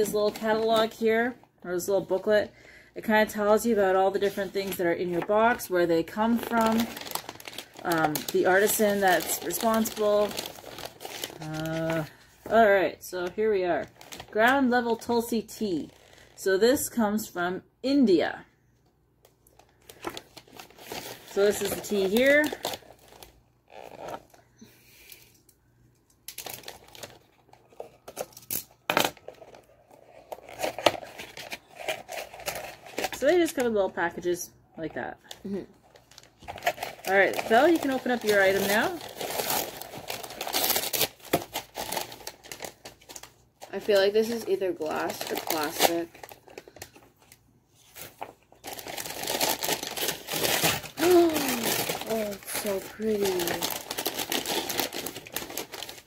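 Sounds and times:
paper packets crinkling: 0:03.4 - 0:12.7, 0:19.5 - 0:24.4, 0:26.3 - 0:33.9, 0:35.3 - 0:56.0.

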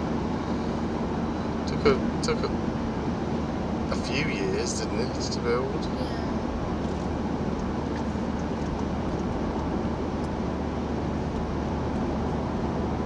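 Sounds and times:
car engine low drone: 0:00.0 - 0:13.0
tyres on asphalt: 0:00.0 - 0:13.0.

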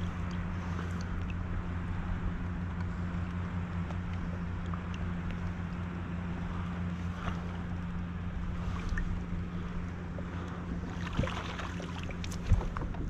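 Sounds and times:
wind rumble on microphone: 0:00.0 - 0:13.0
water splashing and dripping: 0:10.9 - 0:13.0.

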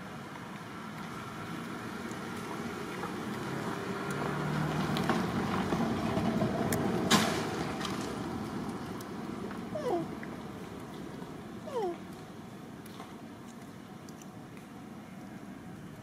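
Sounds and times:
passing vehicle engine rumble: 0:00.0 - 0:12.3.

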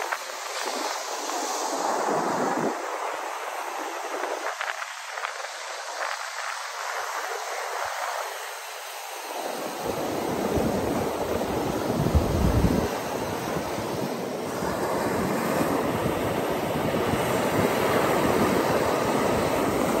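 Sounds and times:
surf breaking on a beach: 0:00.0 - 0:20.0
wind on microphone: 0:00.0 - 0:20.0.

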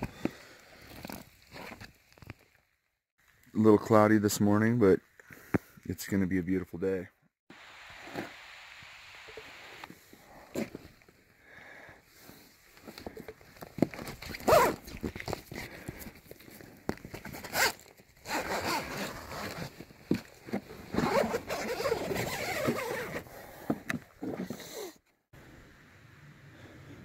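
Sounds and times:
canvas flap rustling: 0:13.9 - 0:15.5, 0:17.3 - 0:23.2
tent zipper pulled open: 0:14.1 - 0:15.6, 0:17.2 - 0:25.0.

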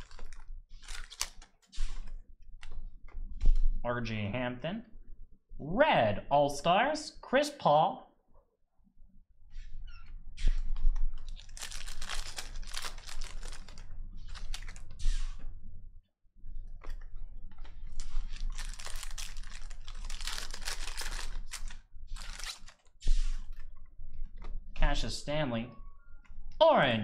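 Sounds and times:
foil wrapper crinkling and tearing: 0:00.0 - 0:01.7, 0:11.2 - 0:15.0, 0:17.7 - 0:22.9
cards being handled: 0:00.0 - 0:03.6, 0:10.4 - 0:15.4, 0:16.8 - 0:23.8.

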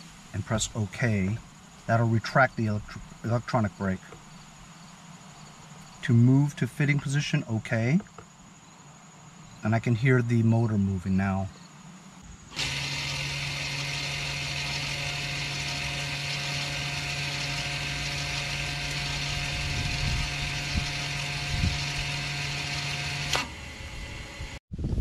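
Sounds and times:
electric parking brake motor humming: 0:12.5 - 0:24.6.

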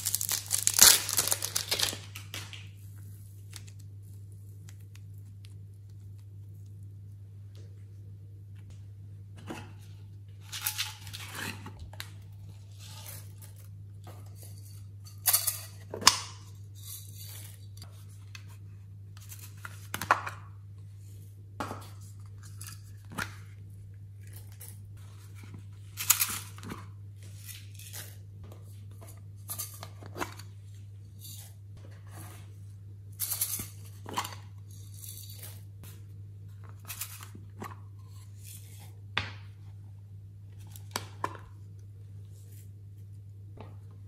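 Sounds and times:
glitter rustling: 0:00.0 - 0:02.1.

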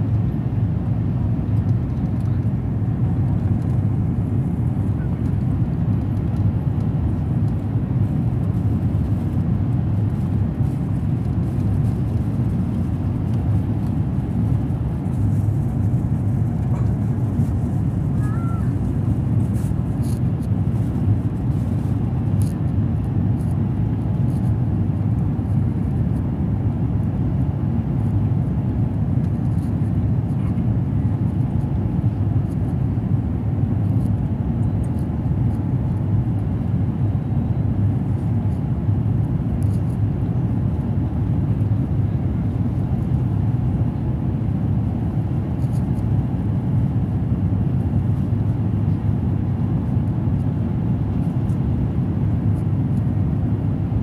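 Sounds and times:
rushing air in cabin: 0:00.0 - 0:33.8
jet engines rumbling: 0:00.1 - 0:54.0.

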